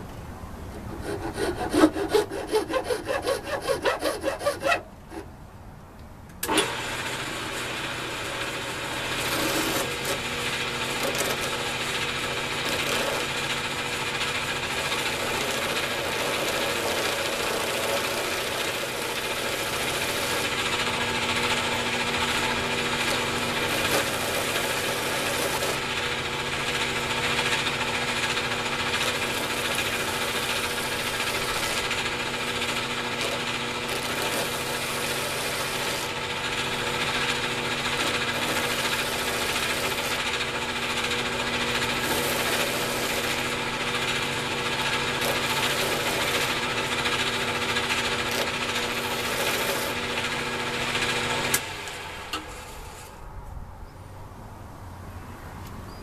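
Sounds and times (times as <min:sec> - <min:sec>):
lathe tool cutting wood: 0:01.0 - 0:05.3, 0:06.4 - 0:53.2
lathe motor hum: 0:06.4 - 0:53.2.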